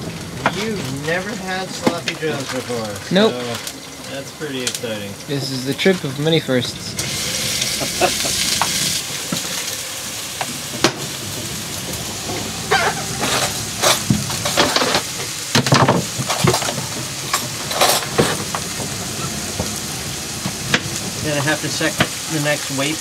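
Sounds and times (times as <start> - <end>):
steady hiss: 0.0 - 23.0.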